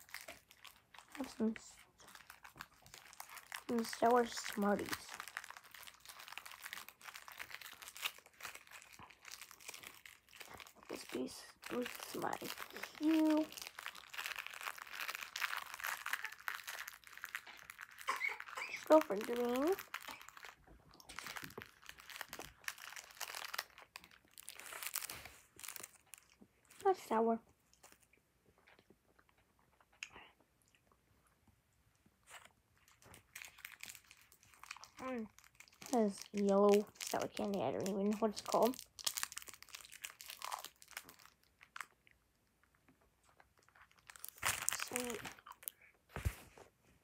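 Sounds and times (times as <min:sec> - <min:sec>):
hard candy crunching: 0:00.0 - 0:27.0, 0:32.2 - 0:46.0
plastic wrapper crinkling: 0:00.0 - 0:29.8, 0:32.2 - 0:46.7.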